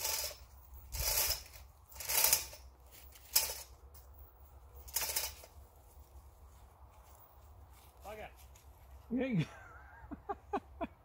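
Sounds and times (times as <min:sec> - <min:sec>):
hand ratchet clicking: 0:00.0 - 0:03.7, 0:04.9 - 0:05.5.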